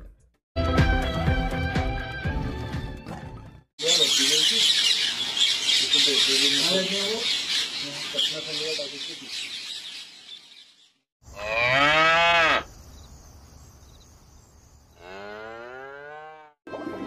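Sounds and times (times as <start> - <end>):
cow mooing: 11.3 - 12.7, 15.0 - 16.6.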